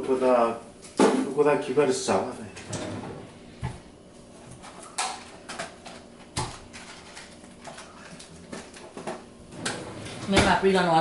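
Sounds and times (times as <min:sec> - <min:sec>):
kitchen items clattering on countertop: 0:04.5 - 0:10.7.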